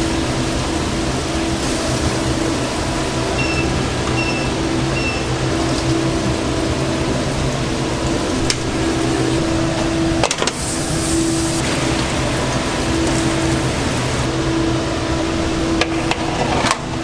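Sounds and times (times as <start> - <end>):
bright hiss: 0.0 - 14.4
kitchen background hum: 0.0 - 17.0
short electronic beeps: 3.4 - 5.3.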